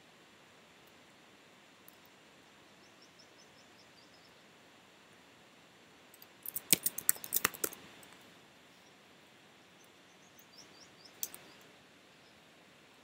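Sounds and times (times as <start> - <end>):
faint steady hiss: 0.0 - 13.0
keyboard keys clicking: 6.5 - 7.8.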